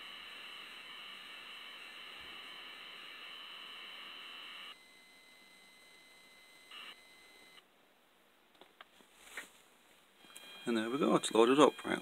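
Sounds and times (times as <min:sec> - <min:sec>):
tape loading data hiss: 0:00.0 - 0:07.6, 0:10.2 - 0:12.0.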